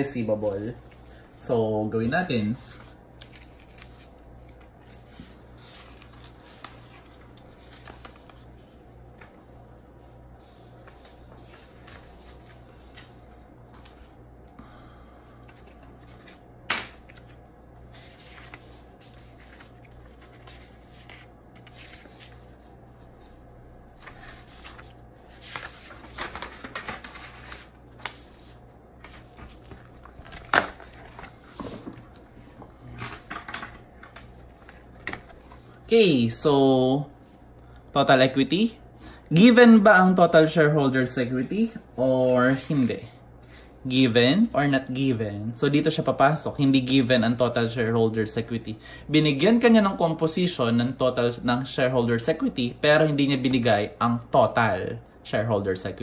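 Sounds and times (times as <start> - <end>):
faint steady hum: 0.0 - 56.0
paper rustling: 2.6 - 8.6, 10.4 - 14.1, 15.4 - 35.8.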